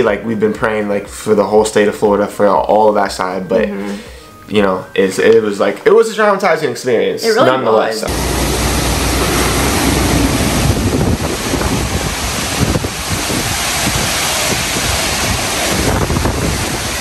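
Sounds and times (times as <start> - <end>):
heavy rain: 8.1 - 17.0
wind buffeting microphone: 8.1 - 17.0.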